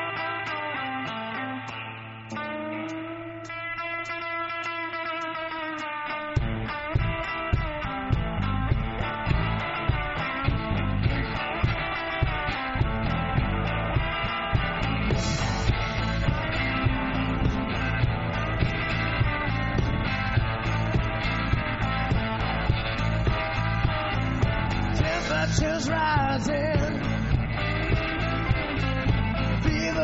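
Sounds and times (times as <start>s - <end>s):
electric guitar lead: 0.0s - 30.0s
bass: 6.3s - 30.0s
drum beat: 6.4s - 30.0s.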